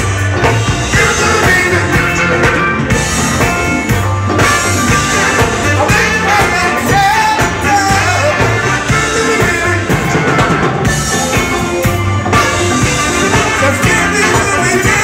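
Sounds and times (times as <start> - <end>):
funk band playing: 0.0 - 15.0
person singing: 0.8 - 3.5, 5.0 - 10.6, 12.8 - 15.0.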